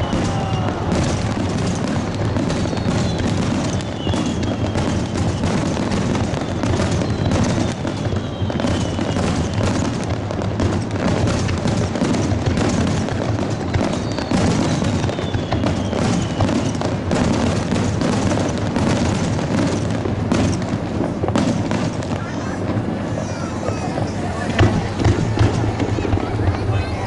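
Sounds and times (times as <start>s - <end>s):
faint falling whistle: 0.0s - 0.8s, 2.4s - 5.6s, 6.4s - 9.7s, 14.0s - 16.8s
fireworks booms and pops: 0.0s - 27.0s.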